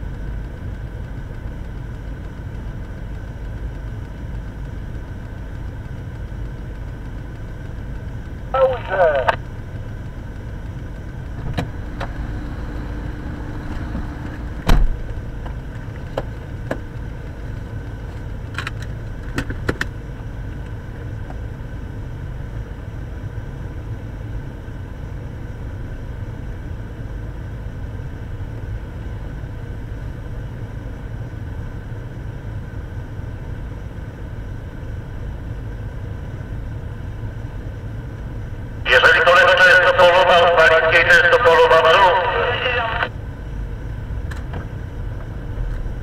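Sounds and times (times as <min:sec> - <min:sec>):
thump: 0:14.7 - 0:15.0.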